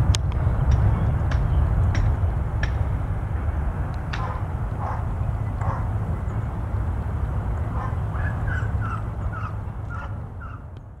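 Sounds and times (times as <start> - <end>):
jet engines rumbling: 0.0 - 11.0
bird calling: 7.6 - 10.8.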